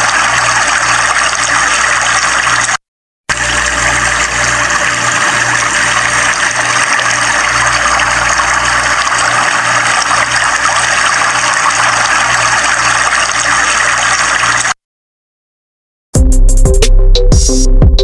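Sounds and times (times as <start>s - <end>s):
floodwater rushing over blocks: 0.0s - 14.8s.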